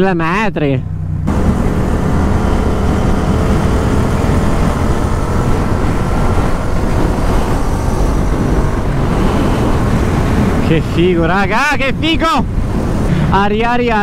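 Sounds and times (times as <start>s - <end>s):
motorcycle engine running: 0.8s - 10.7s
wind rush on microphone: 1.1s - 14.0s.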